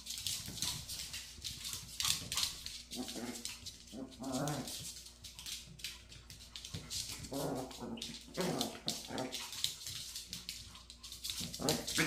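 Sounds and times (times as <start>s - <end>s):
claws clicking on floor: 0.0s - 12.0s
dogs growling: 2.9s - 4.8s, 7.1s - 9.5s, 11.5s - 12.0s.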